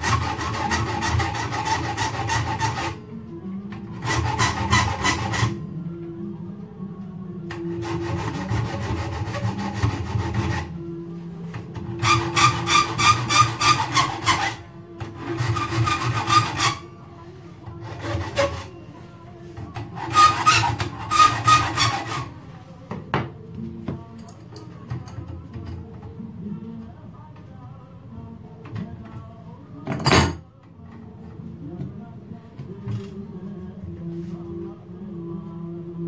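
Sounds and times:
hand file rasping on metal: 0.0 - 3.0, 4.0 - 5.6, 7.5 - 10.7, 11.9 - 16.9, 17.7 - 18.7, 19.8 - 22.4.

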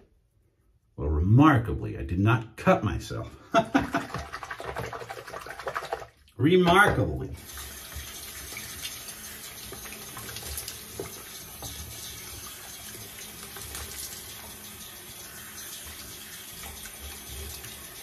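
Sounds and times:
tap water running into sink: 3.7 - 18.0.

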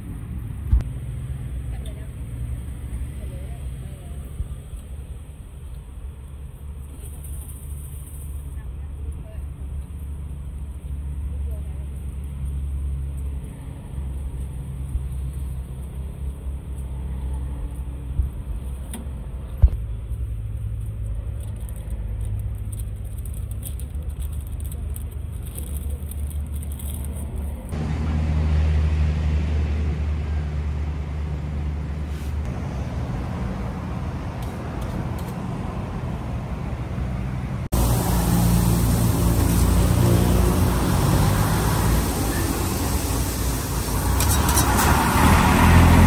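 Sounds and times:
road traffic rumble: 0.0 - 46.0.

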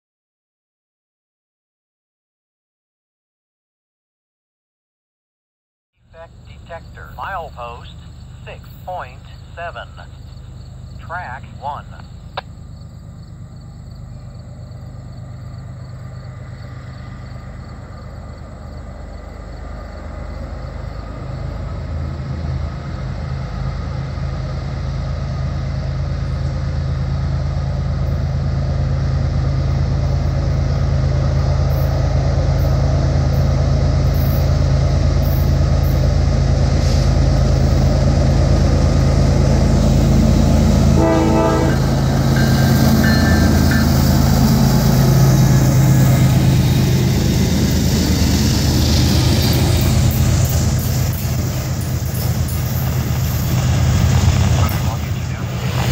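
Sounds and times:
diesel locomotive engines droning: 6.0 - 55.9
train horn: 40.6 - 44.7.

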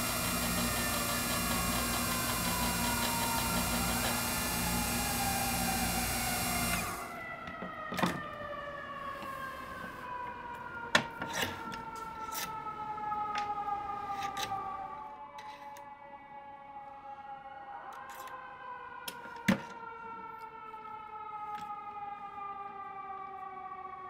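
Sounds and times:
lathe running noise: 0.0 - 7.2
motor whine falling in pitch: 0.0 - 7.2.

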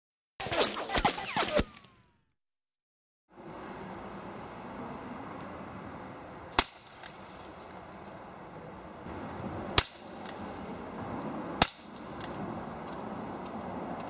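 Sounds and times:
air pistol shot crack: 6.6 - 7.0, 9.8 - 10.1, 11.6 - 12.0.

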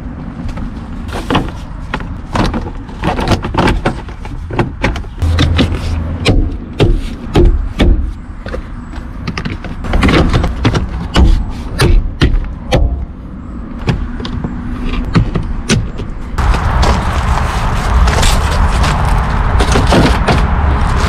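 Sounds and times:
heavier thumps: 4.4 - 8.2.

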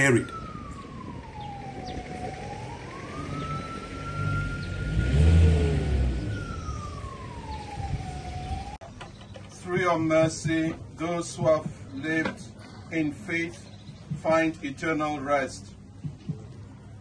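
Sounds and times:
siren-like wailing tone: 0.0 - 8.8.

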